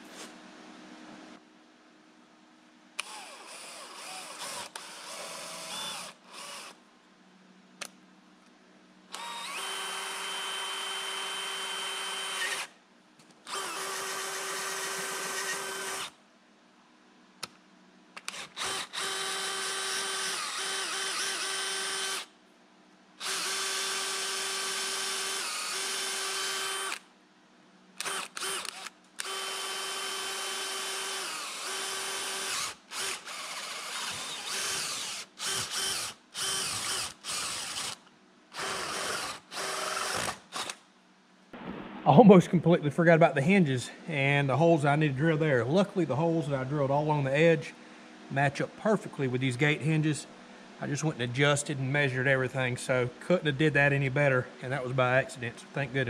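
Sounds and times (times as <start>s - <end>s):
cordless drill whining: 3.0s - 6.8s, 9.1s - 12.7s, 13.5s - 16.1s, 18.2s - 22.3s, 23.2s - 27.0s, 28.0s - 40.8s.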